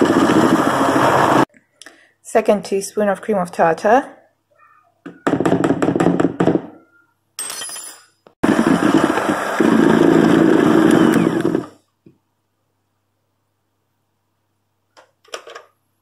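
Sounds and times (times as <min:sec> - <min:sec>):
electric hand mixer whirring: 0:00.0 - 0:01.5, 0:08.4 - 0:11.8.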